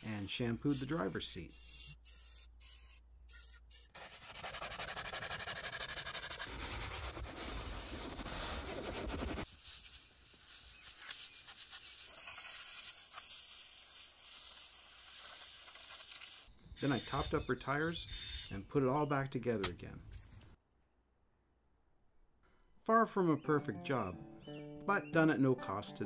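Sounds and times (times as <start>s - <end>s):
brush scrubbing cloth upholstery: 4.0s - 12.5s.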